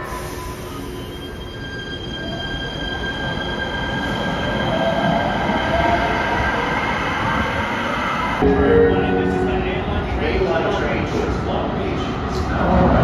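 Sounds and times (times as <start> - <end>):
train wheels squealing: 0.0 - 7.0
train rumble: 2.0 - 13.0
low whine rising in pitch: 8.4 - 11.0.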